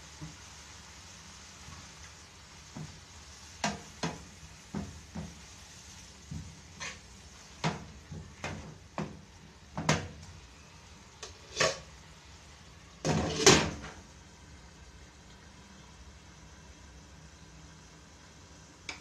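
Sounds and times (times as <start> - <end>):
spatula scraping frying pan: 3.6 - 9.2, 11.2 - 12.0, 13.0 - 14.0.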